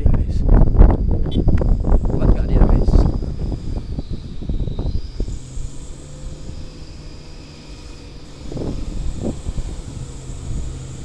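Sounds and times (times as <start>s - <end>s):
truck diesel engine running: 3.1s - 11.0s.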